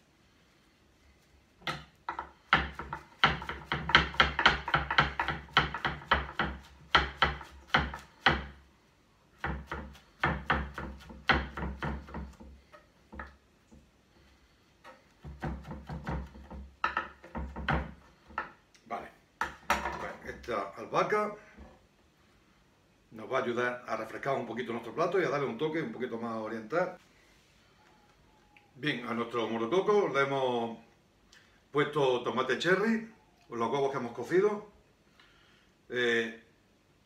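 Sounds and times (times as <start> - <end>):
knife chopping on cutting board: 1.7 - 8.6, 9.4 - 12.4, 15.2 - 18.0.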